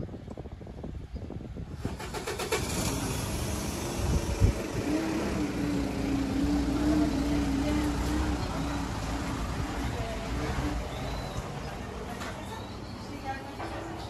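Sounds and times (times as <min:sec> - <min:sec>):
motor vehicle running: 0:01.8 - 0:12.4.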